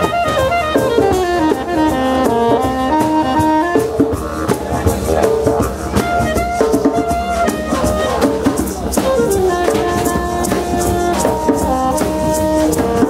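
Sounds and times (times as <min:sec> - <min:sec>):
didgeridoo drone: 0:00.0 - 0:13.0
drum kit and hand drum: 0:00.0 - 0:13.0
saxophone melody: 0:00.0 - 0:13.0.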